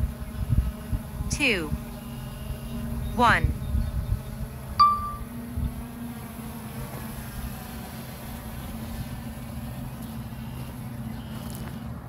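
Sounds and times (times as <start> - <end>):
wind buffeting microphone: 0.0 - 6.1.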